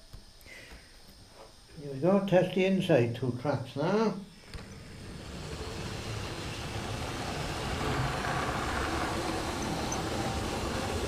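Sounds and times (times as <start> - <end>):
model train running on track: 4.6 - 11.0.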